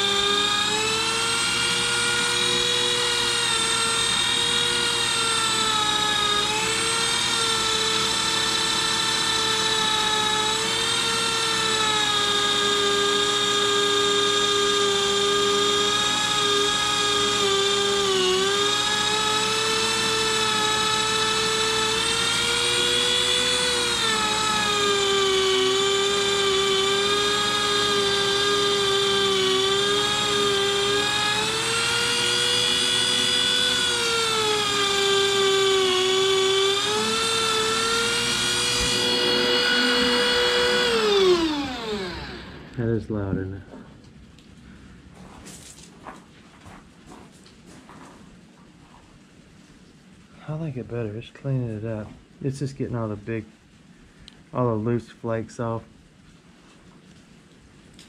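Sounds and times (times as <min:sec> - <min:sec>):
rotary tool whining on metal: 0:00.0 - 0:43.4.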